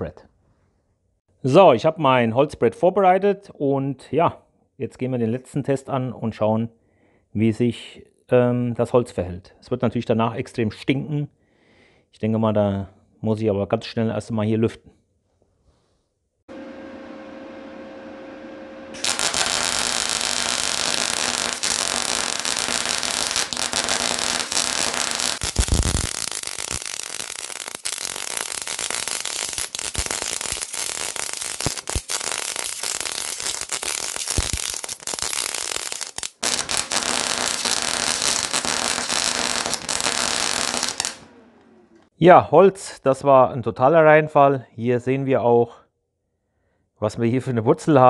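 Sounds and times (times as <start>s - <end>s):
low steady hum: 16.5s - 19.2s
welding arc crackling: 16.5s - 41.6s.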